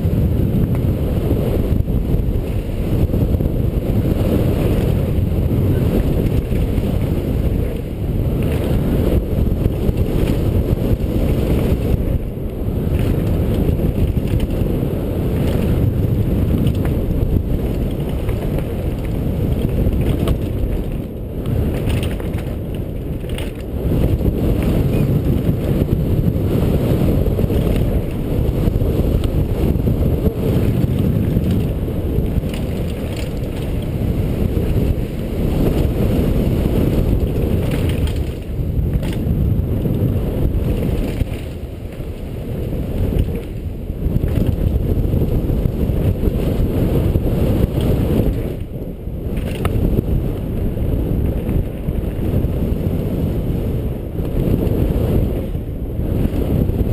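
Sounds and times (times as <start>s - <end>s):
bike rattling: 0.0s - 56.9s
wind rumbling on microphone: 0.0s - 56.9s.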